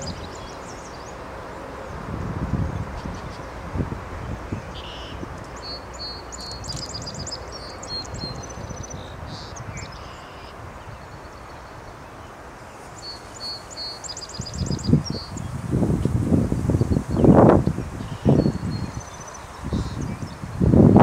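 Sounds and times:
songbird trilling: 4.6 - 10.6, 12.9 - 15.5, 16.8 - 20.5.

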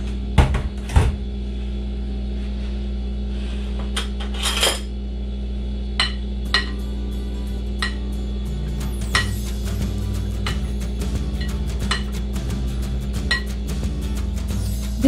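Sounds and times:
metal spoon clinking glass bowl: 6.0 - 6.8, 9.0 - 9.5, 11.4 - 12.2, 13.2 - 13.6.

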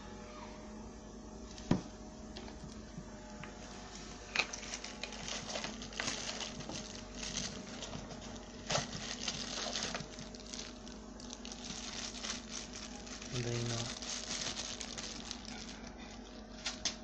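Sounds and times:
cardboard packaging rustling: 4.3 - 17.0.

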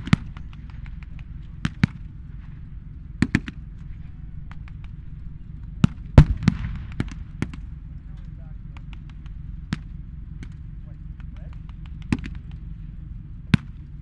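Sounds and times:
distant gunshot pops: 0.0 - 2.1, 5.8 - 7.7, 11.2 - 12.7, 13.5 - 13.8
low rumble: 0.0 - 14.0
blank gunfire cracks: 5.8 - 7.6.

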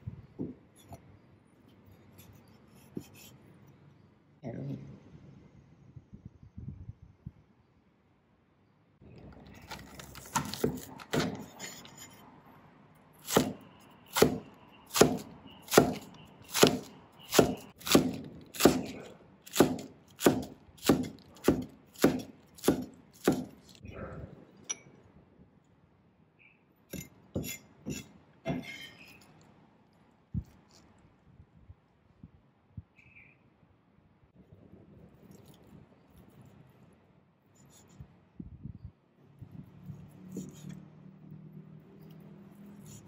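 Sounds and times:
cleaver chopping on wooden board: 10.2 - 11.5, 13.2 - 23.6.

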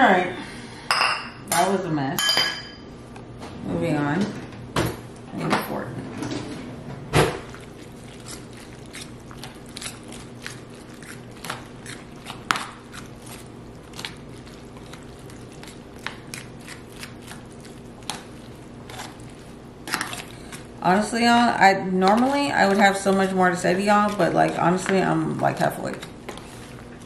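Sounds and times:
wet squishing of macaroni: 7.4 - 20.8, 22.0 - 27.0.

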